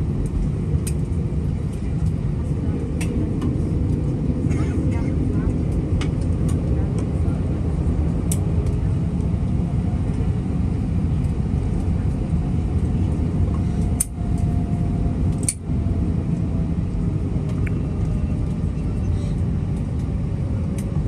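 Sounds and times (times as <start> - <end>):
airplane cabin engine rumble: 0.0 - 21.0.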